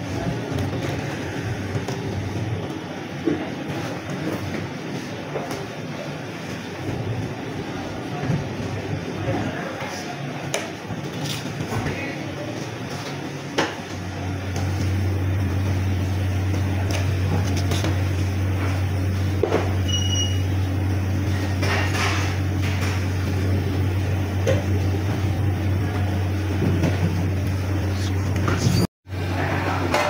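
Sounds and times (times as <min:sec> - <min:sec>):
low mechanical hum: 0:00.0 - 0:30.0
short high beep: 0:19.9 - 0:20.5.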